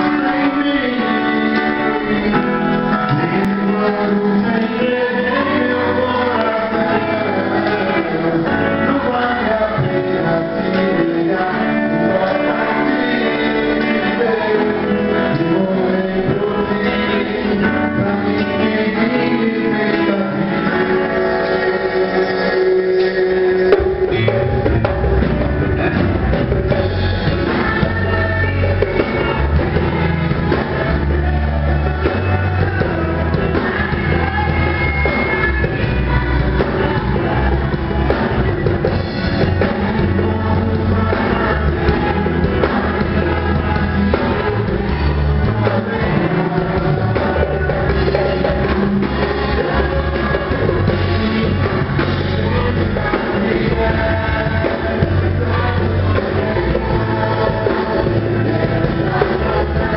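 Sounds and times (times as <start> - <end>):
band playing a song: 0.0 - 59.9
person singing: 0.0 - 59.9.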